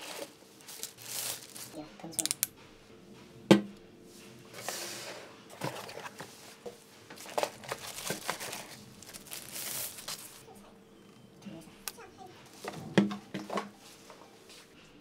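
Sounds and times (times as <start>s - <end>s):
packaging rustling and crinkling: 0.0s - 2.4s, 4.6s - 10.5s.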